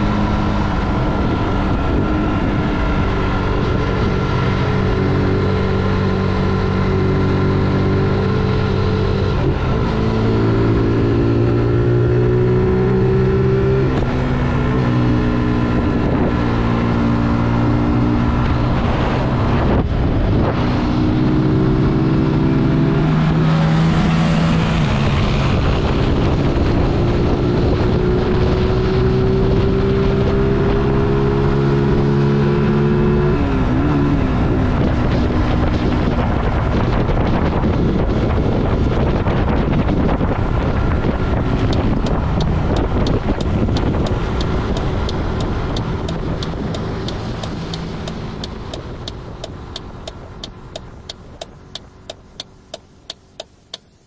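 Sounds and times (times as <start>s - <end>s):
motorcycle engine revving: 0.0s - 36.4s, 40.5s - 54.0s
road noise: 0.0s - 54.0s
wind noise on microphone: 0.0s - 54.0s
even ticking: 41.7s - 54.0s.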